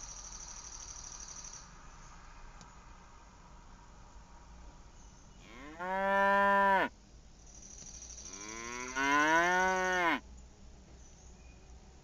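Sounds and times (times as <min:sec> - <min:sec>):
cow mooing: 0:05.4 - 0:06.9, 0:08.4 - 0:10.2.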